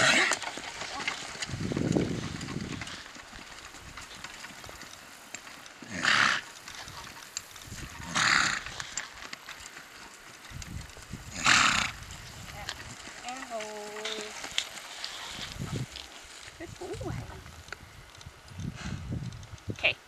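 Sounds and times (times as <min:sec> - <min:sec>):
horse breathy blasts: 0:18.7 - 0:19.1.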